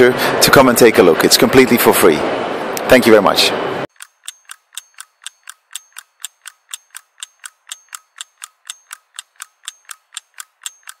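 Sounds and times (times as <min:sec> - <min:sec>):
rapid mechanical ticking: 0:03.9 - 0:11.0.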